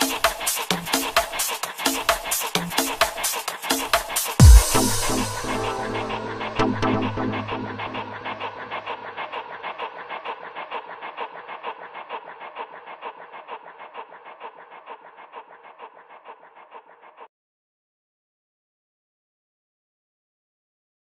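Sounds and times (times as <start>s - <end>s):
electronic music pulse: 4.4s - 9.1s.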